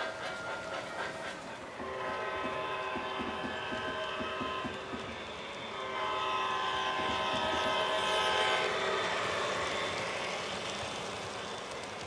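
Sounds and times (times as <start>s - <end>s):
model train wheels clicking on track: 0.0s - 12.0s
model locomotive horn blast: 1.7s - 9.5s.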